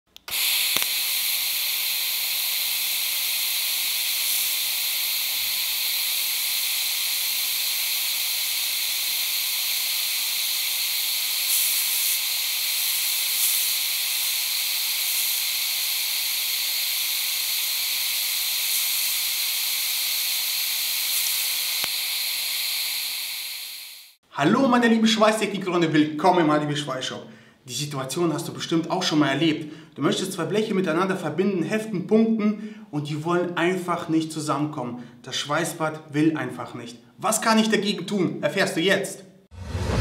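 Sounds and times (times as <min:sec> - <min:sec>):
welding arc hissing: 0:00.1 - 0:24.2.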